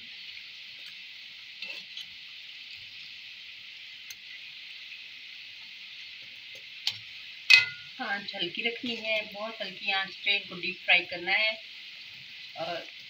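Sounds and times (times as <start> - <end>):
oil sizzling while deep-frying: 0.0 - 13.0
metal skimmer clicking on pan: 6.8 - 7.9.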